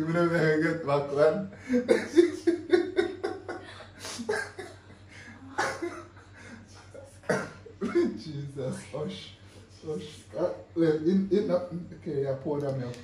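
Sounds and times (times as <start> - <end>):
man and woman laughing: 1.6 - 8.8.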